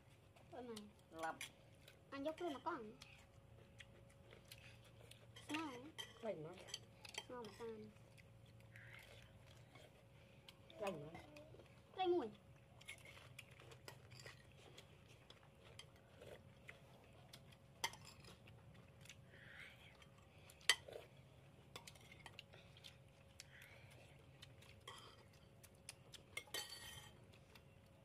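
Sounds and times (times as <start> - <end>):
faint steady hum: 0.0 - 28.0
spoons clinking on plates: 26.4 - 27.2.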